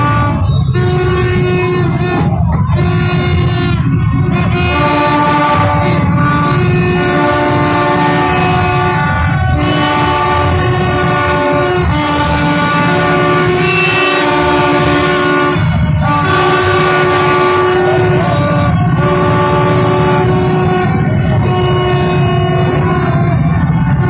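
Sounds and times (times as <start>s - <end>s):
motorbike engines droning: 0.0s - 24.0s
vehicle horns blaring: 0.0s - 24.0s.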